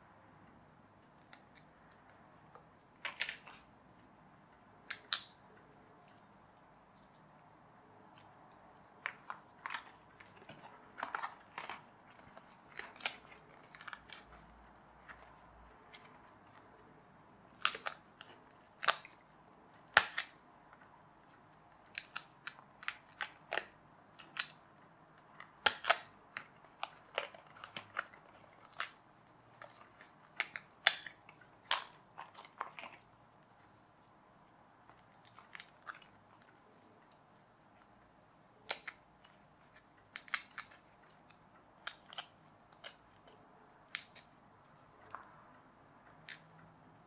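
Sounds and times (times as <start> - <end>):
card pieces snapping and crinkling: 1.2 - 3.7, 8.2 - 16.9, 17.5 - 19.2, 19.8 - 20.8, 21.4 - 33.1, 38.6 - 44.3.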